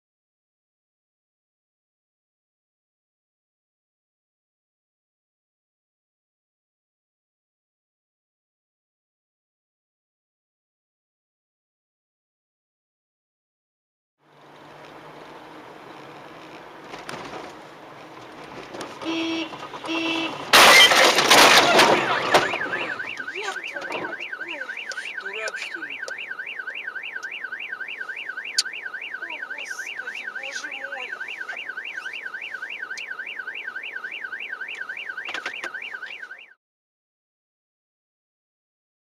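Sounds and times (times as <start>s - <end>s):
vehicle collision crash: 18.4s - 24.3s
car horn honking: 19.0s - 33.2s
car alarm warbling: 19.0s - 36.6s.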